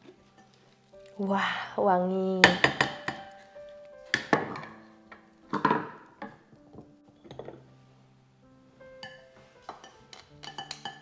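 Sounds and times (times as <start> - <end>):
faint background music: 0.0 - 11.0
wooden utensils knocking: 2.4 - 3.4, 4.1 - 7.7.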